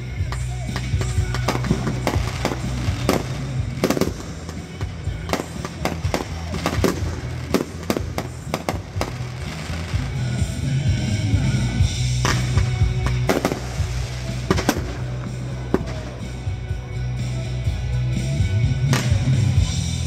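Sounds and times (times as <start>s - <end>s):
fireworks bursting: 0.0s - 16.8s, 18.8s - 20.0s
music playing: 0.0s - 20.0s.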